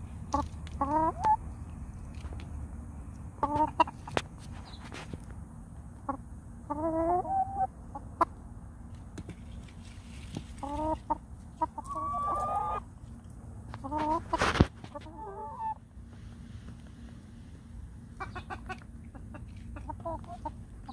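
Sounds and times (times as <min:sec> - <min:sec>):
hens clucking: 0:00.3 - 0:01.4, 0:03.4 - 0:04.9, 0:06.0 - 0:08.4, 0:10.4 - 0:13.1, 0:13.7 - 0:15.8, 0:18.0 - 0:20.9.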